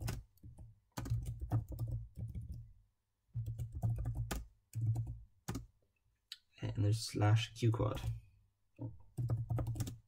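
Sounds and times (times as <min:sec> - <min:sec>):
typing on a keyboard: 0:00.0 - 0:02.6, 0:03.4 - 0:05.7, 0:09.2 - 0:10.0.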